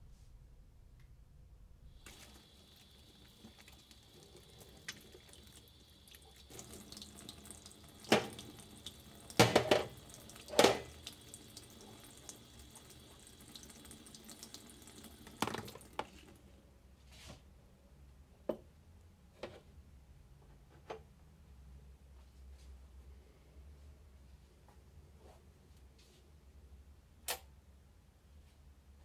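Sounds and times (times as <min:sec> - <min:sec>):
tap running into sink: 0:02.0 - 0:12.3, 0:14.2 - 0:16.2
dishes clattering: 0:09.4 - 0:10.9.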